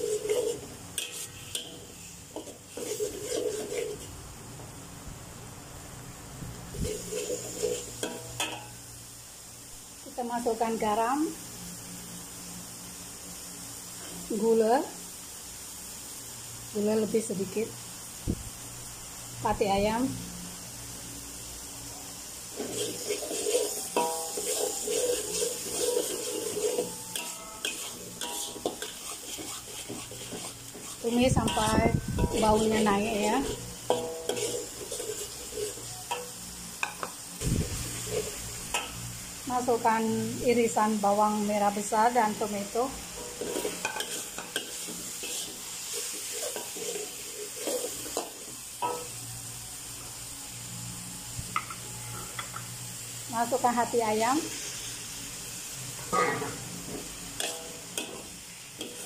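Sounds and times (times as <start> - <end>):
metal spatula scraping wok: 0.0 - 4.2, 6.7 - 8.8, 22.4 - 37.1, 37.7 - 49.2, 56.0 - 59.0
paste sizzling: 0.0 - 4.6, 6.5 - 59.0
spatula clanking against pan: 7.6 - 8.7, 22.6 - 35.2, 43.4 - 45.5.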